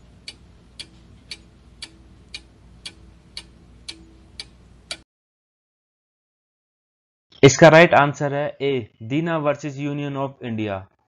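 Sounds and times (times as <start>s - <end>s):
clock ticking: 0.0s - 5.0s
faint low hum: 0.0s - 5.0s.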